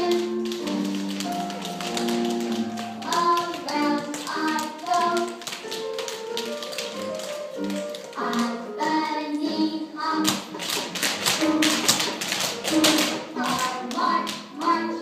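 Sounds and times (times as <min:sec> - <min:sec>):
tap shoes on hard floor: 0:00.0 - 0:09.0, 0:10.2 - 0:15.0
recorded music with melody: 0:00.0 - 0:15.0.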